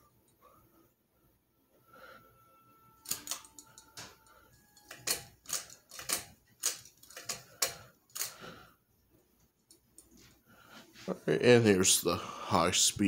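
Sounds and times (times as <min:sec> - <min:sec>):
pull-chain switch clicking: 0:03.0 - 0:04.0.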